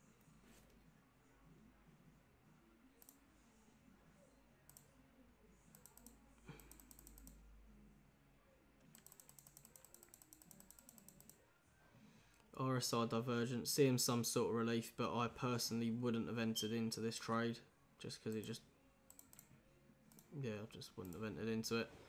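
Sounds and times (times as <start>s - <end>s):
faint computer clicking: 3.0s - 3.2s, 4.6s - 4.9s, 5.7s - 7.4s, 8.8s - 11.4s, 18.3s - 20.4s, 21.0s - 21.4s.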